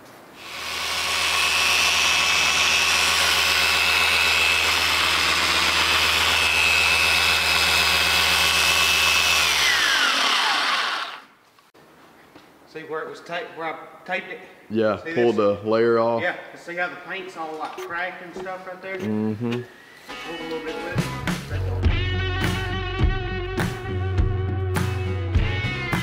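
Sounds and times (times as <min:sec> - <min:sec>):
electric polisher whining: 0:00.4 - 0:11.3.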